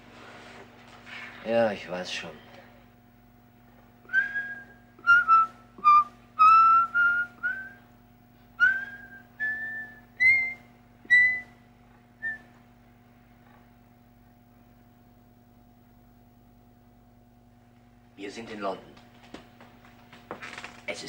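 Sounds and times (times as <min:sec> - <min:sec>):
steady low hum: 0:00.0 - 0:21.0
man whistling a tune: 0:04.1 - 0:07.8, 0:08.6 - 0:11.6, 0:12.2 - 0:12.5.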